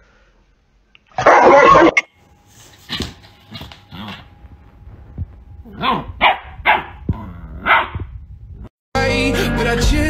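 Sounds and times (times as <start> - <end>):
dog barking: 1.2 - 2.0, 5.8 - 7.0, 7.6 - 8.0.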